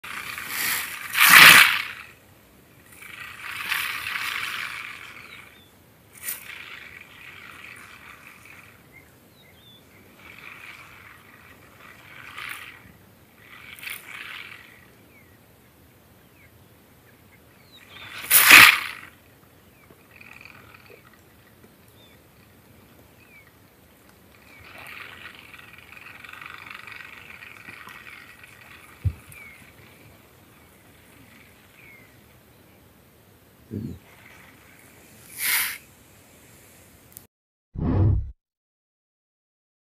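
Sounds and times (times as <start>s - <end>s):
animals hissing and rasping: 0.1s - 2.1s, 2.9s - 15.3s, 17.8s - 19.1s, 24.3s - 32.2s, 33.7s - 36.8s.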